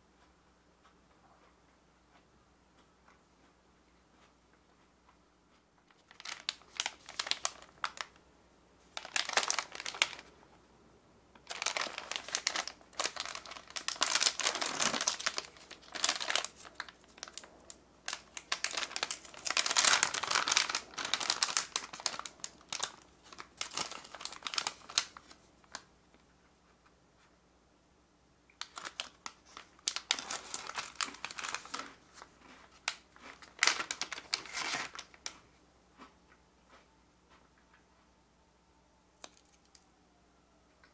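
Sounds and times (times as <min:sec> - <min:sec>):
plastic snack pouch crinkling: 0:05.9 - 0:08.2, 0:08.9 - 0:10.3, 0:11.4 - 0:25.9, 0:28.6 - 0:35.4, 0:39.2 - 0:39.8.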